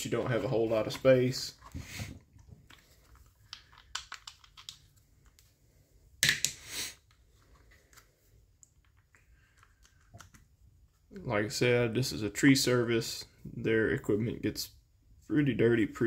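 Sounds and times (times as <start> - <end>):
plastic part clattering: 0.9 - 5.4
plastic parts clicking and rattling: 0.9 - 5.5, 8.6 - 10.5.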